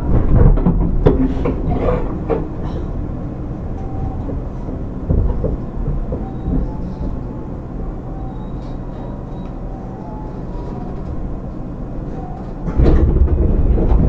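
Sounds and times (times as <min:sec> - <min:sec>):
rail joint knocks: 0:00.0 - 0:07.4, 0:12.2 - 0:14.0
train wheels rumbling on rail: 0:00.0 - 0:14.0.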